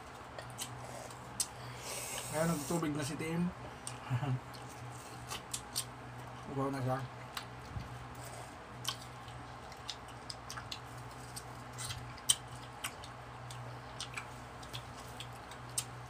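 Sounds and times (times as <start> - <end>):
electric fan humming: 0.0 - 16.0
wet chewing and lip-smacking: 0.3 - 2.3, 3.8 - 6.0, 7.2 - 16.0.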